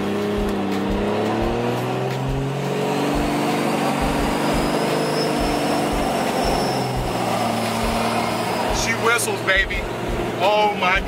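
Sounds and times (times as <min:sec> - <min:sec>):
diesel engine pulling: 0:00.0 - 0:11.0
turbo whistle: 0:03.6 - 0:09.0.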